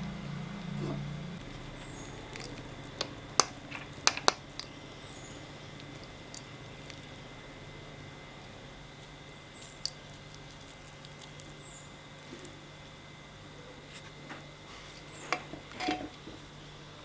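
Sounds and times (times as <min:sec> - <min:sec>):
low hum: 0:00.0 - 0:17.0
ladle scooping soft food: 0:00.7 - 0:12.8.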